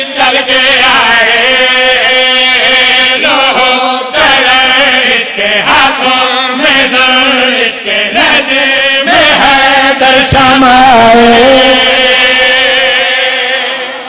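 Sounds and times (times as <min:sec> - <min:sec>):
men chanting into a microphone: 0:00.0 - 0:14.0.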